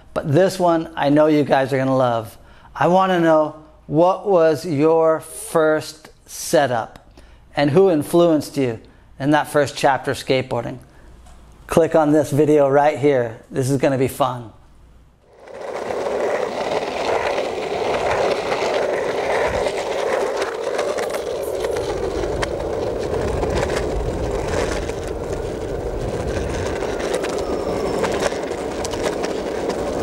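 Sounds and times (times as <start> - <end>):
skateboard wheels rolling on pavement: 15.2 - 30.0.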